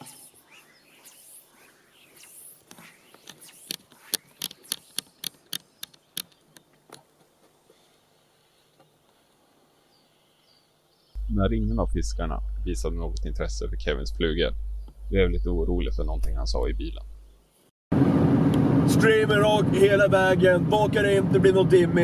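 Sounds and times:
fly reel clicking: 0:00.0 - 0:06.5.

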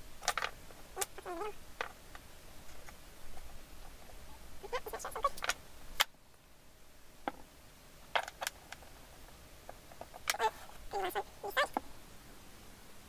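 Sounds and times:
wooden blocks knocking: 0:07.3 - 0:07.5.

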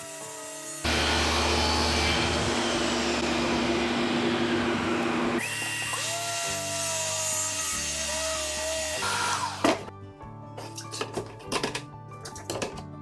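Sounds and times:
circular saw cutting plywood: 0:00.0 - 0:09.6.

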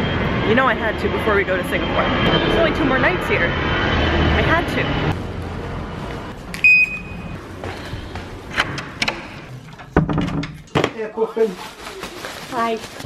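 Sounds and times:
street traffic rumble: 0:00.0 - 0:09.6.

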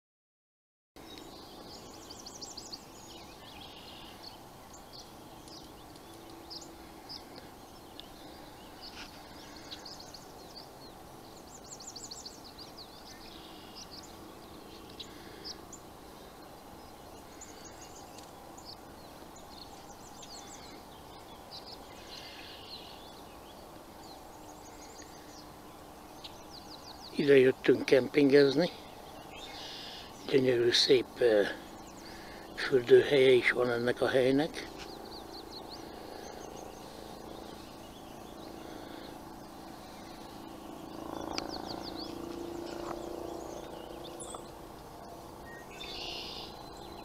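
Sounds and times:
birds singing and chirping: 0:01.0 - 0:47.0
faint steady background hum: 0:01.0 - 0:47.0
rapid high bird trill: 0:45.6 - 0:47.0.

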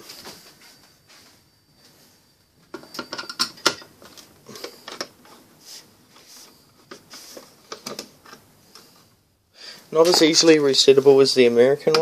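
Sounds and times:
sharp clicks and small knocks: 0:02.6 - 0:05.2.

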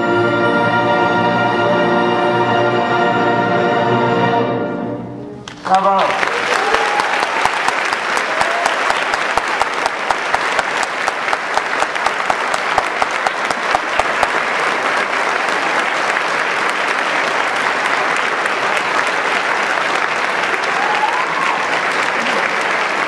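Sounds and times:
audience applauding: 0:05.4 - 0:23.0.

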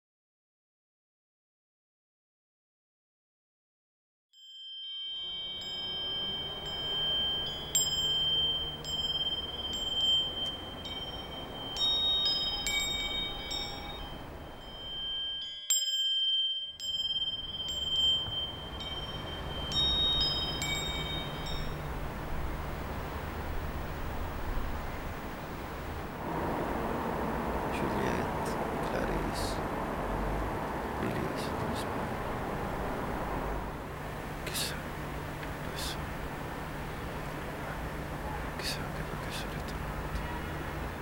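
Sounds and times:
tinkling chimes: 0:04.4 - 0:22.7
steady high tone: 0:05.0 - 0:15.7, 0:16.7 - 0:23.6, 0:25.7 - 0:37.0
low rumble: 0:18.5 - 0:37.6.

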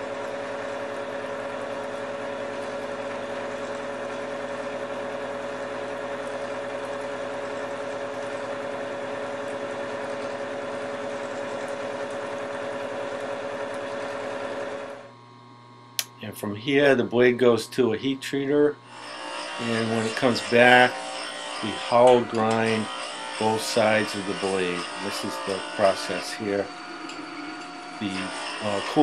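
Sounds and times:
milling machine cutting steel: 0:18.8 - 0:29.0.

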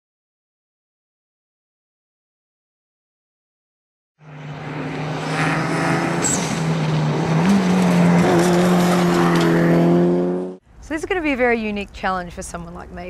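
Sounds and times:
rally car engine at high revs: 0:04.2 - 0:10.6.

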